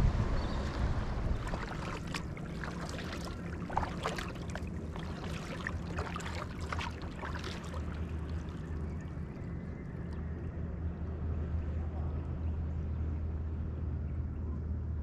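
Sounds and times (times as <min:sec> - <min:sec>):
low rumble: 0:00.0 - 0:15.0
paddle splashing in water: 0:00.6 - 0:09.0.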